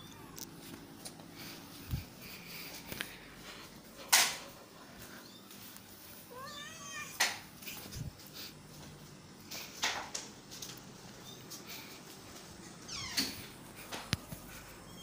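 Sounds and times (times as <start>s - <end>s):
cat meowing: 6.3s - 7.2s.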